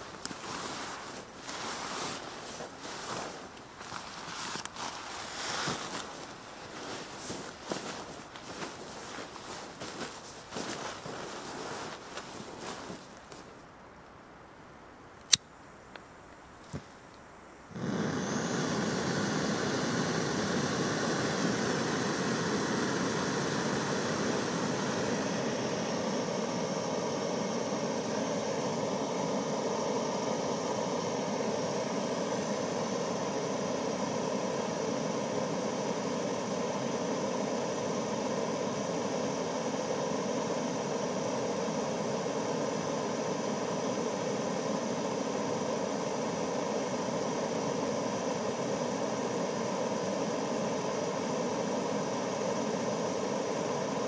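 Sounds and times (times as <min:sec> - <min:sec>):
gas stove burner hissing: 0:17.7 - 0:54.0.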